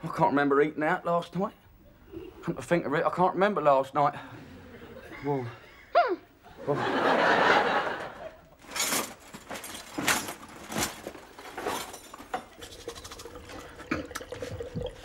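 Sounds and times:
bag rustling: 8.6s - 13.5s
glass bottles clinking: 8.6s - 15.0s.

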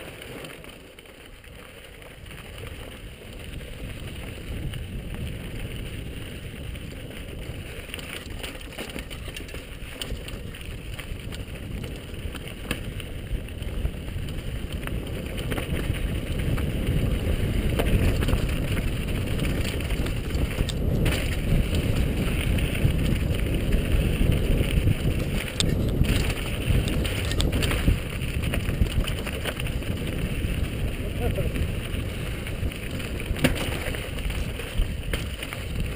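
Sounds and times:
bike tyres crunching on rocky trail: 0.0s - 35.9s
wind buffeting microphone: 2.2s - 35.9s.

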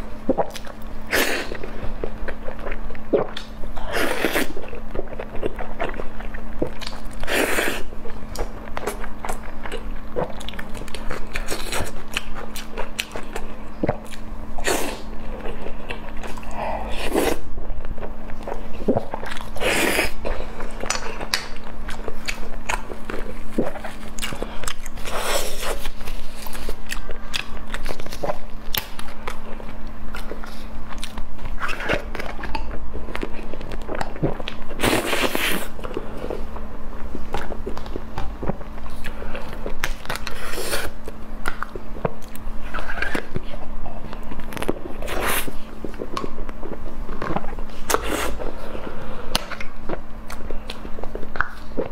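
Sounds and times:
person biting and chewing: 18.0s - 36.0s.

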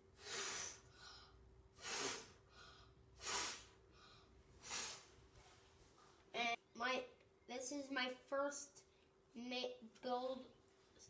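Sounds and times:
child blowing puffs of breath: 0.1s - 5.2s.

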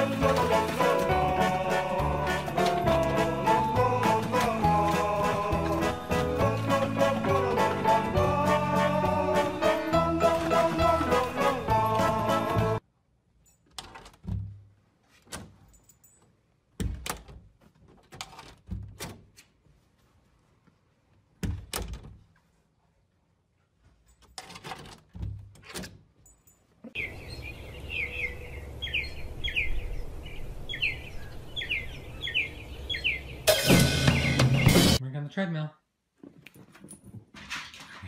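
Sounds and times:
door knocks and latch clicks: 16.8s - 17.5s, 21.4s - 22.2s
outdoor hum: 25.7s - 34.6s
bird chirping: 27.0s - 35.0s.

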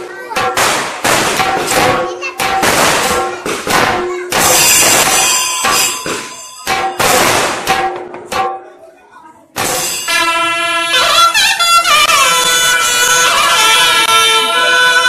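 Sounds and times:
drums beaten with sticks: 0.0s - 8.9s, 9.5s - 15.0s
hand cymbals ringing: 4.1s - 8.8s, 9.6s - 13.6s.

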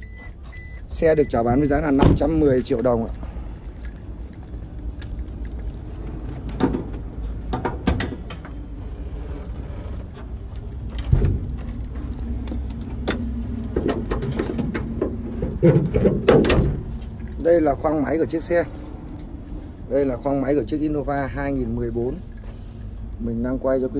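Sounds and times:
steady low rumble: 0.0s - 23.9s
sharp metallic clicks and knocks: 10.1s - 17.4s.

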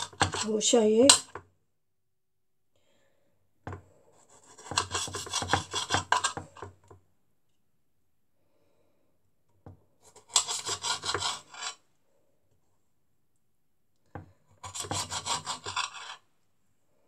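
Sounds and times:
knife sawing through tomatoes: 4.2s - 6.4s, 10.1s - 11.8s, 14.6s - 16.2s.

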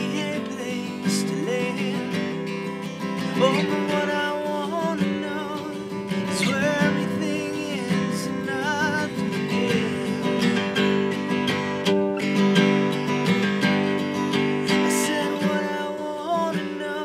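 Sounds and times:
person singing: 0.0s - 11.2s, 14.4s - 17.0s
strummed acoustic guitar: 0.0s - 17.0s.

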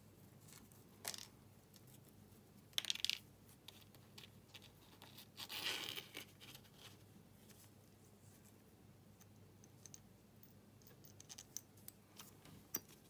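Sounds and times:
gloved hands rustling and scraping: 3.4s - 8.7s
small metal parts clinking: 9.6s - 13.0s.

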